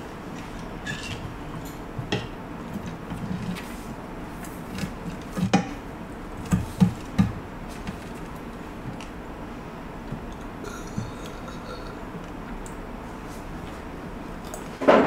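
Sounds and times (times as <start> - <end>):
cutlery scraping a plate: 0.8 - 1.3.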